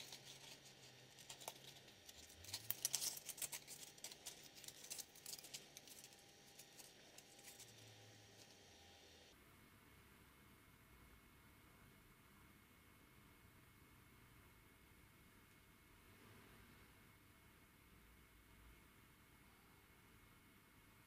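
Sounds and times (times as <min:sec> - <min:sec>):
sandpaper rustling: 0:00.0 - 0:08.6.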